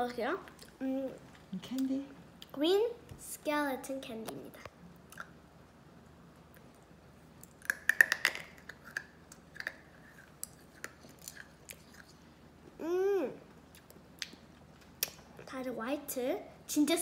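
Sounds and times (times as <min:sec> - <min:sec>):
child chewing candy: 0:07.4 - 0:12.8.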